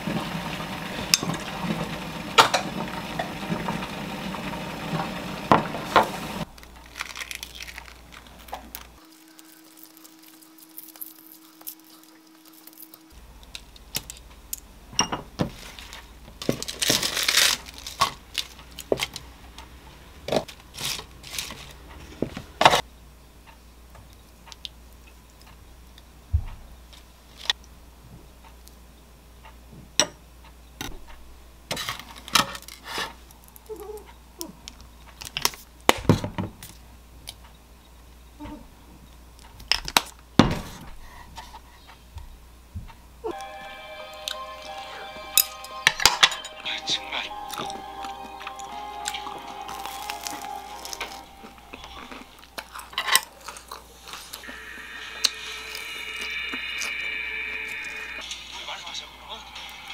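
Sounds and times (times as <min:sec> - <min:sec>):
food rustling: 0:05.9 - 0:14.5, 0:15.3 - 0:22.8, 0:49.1 - 0:54.5
dishes and utensils clinking: 0:44.3 - 0:54.4.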